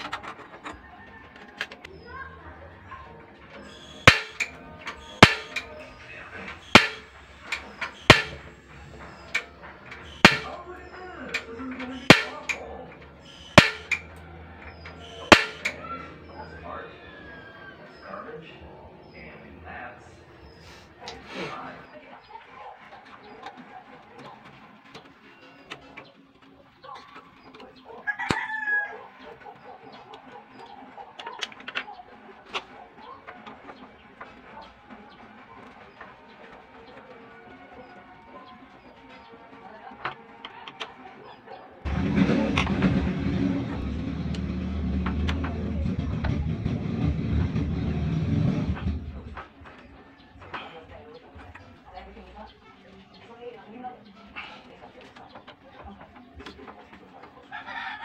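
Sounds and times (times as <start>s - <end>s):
chicken calling: 0.0s - 24.6s, 25.3s - 33.9s
gas burner lighting: 3.6s - 12.7s, 13.3s - 15.8s
metal parts clicking and tapping: 3.8s - 15.8s.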